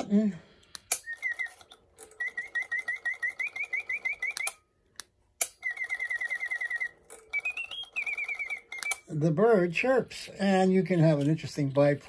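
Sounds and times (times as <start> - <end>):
mechanical bird chirping: 0.9 - 4.6, 5.4 - 9.2
rising whistled note: 5.6 - 9.0.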